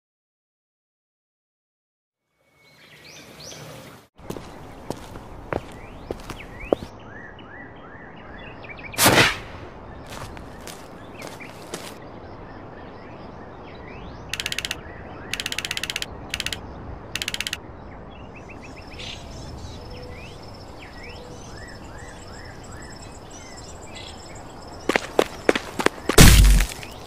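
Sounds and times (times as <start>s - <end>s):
birds chirping: 2.6s - 27.0s
rapid text blip clicking: 14.4s - 16.6s, 17.2s - 17.6s.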